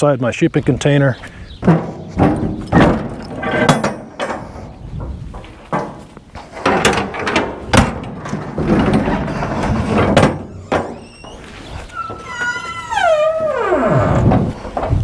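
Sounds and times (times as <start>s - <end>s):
metal clanks and knocks: 1.6s - 11.5s, 14.2s - 15.0s
metal scraping: 1.6s - 15.0s.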